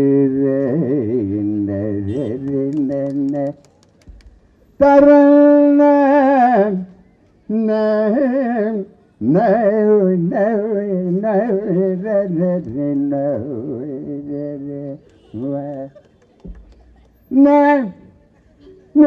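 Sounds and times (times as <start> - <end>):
man singing unaccompanied: 0.0 - 3.6, 4.7 - 16.0, 17.3 - 18.2.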